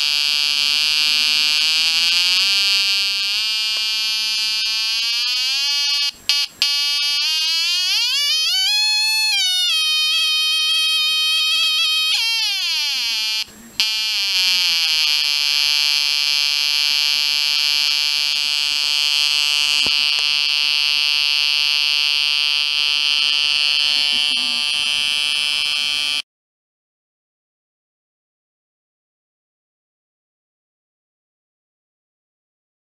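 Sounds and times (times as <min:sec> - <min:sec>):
square-wave buzz from small speaker: 0:00.0 - 0:26.2.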